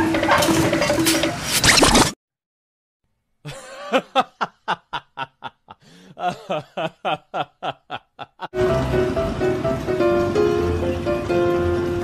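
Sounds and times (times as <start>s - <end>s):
laughing sound effect: 3.5s - 8.6s.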